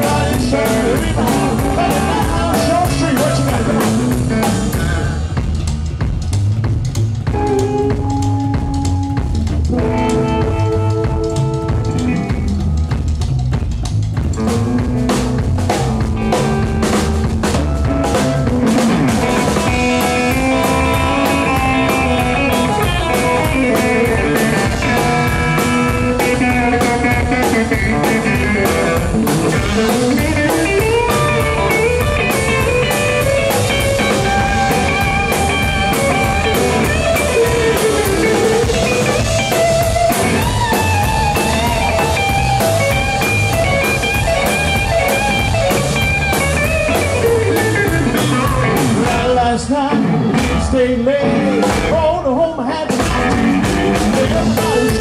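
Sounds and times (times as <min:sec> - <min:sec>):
drum kit: 0:00.0 - 0:55.0
upright bass: 0:00.0 - 0:55.0
electric guitar solo: 0:07.4 - 0:12.5, 0:16.2 - 0:49.1.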